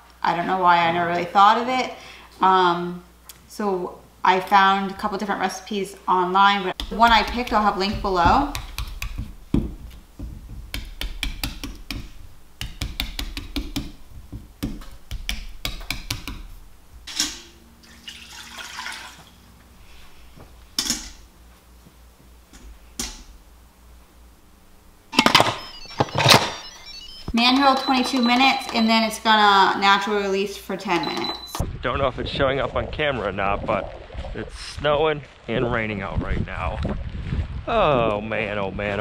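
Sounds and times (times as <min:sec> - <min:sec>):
knocks: 0:06.8 - 0:16.6
water pouring: 0:17.8 - 0:19.5, 0:32.8 - 0:37.5.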